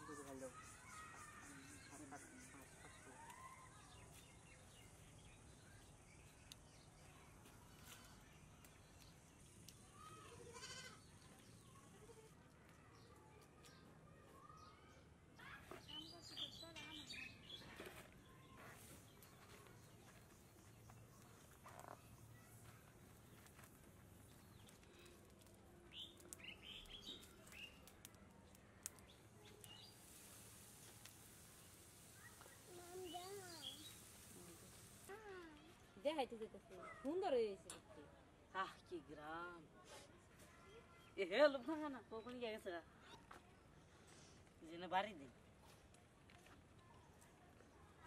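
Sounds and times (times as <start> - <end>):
wood fire crackling: 18.8 - 35.2
faint bird chirps: 28.8 - 35.5.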